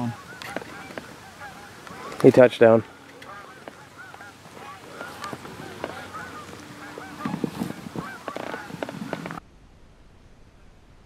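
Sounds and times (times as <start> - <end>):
geese honking: 0.0 - 9.4.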